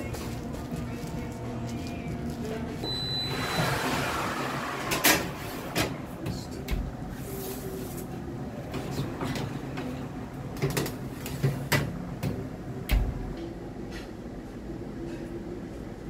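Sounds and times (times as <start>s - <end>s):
oven fan hum: 0.0s - 16.0s.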